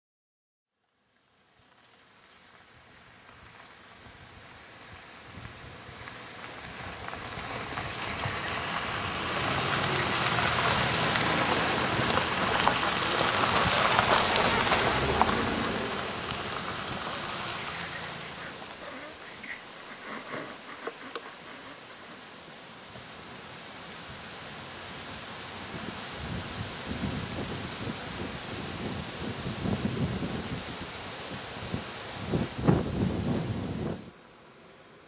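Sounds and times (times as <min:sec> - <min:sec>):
vehicles driving past: 0:05.0 - 0:29.2
tyres crunching on dirt: 0:05.3 - 0:22.4.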